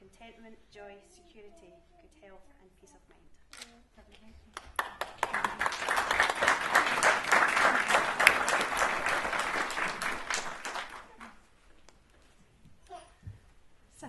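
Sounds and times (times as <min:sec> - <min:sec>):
guests applauding: 0:04.6 - 0:11.4.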